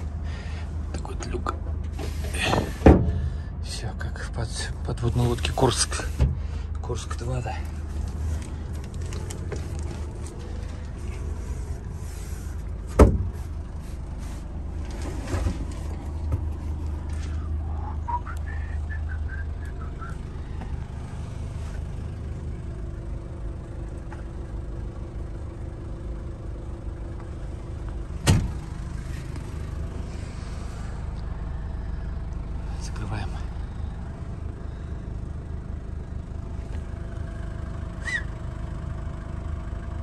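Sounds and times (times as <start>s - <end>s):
knocks and thumps of movement: 1.5s - 3.4s, 7.7s - 11.9s, 12.5s - 13.6s, 14.4s - 17.4s
low hum: 7.5s - 39.6s.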